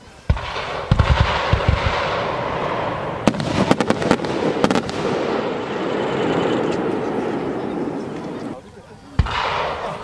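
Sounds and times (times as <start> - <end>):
fireworks crackling pops: 0.2 - 5.6.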